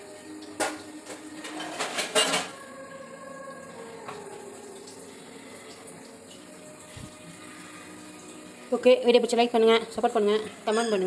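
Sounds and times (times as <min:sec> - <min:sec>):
steel bowl clinking and knocking: 0:00.6 - 0:02.6.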